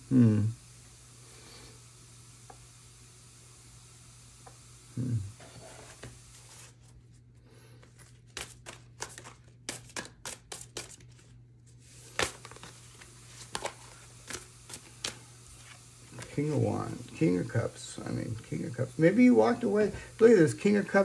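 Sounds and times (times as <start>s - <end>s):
low hum of a voice: 0.0s - 0.6s, 5.0s - 5.4s
cards being shuffled: 5.6s - 7.2s, 7.8s - 17.6s.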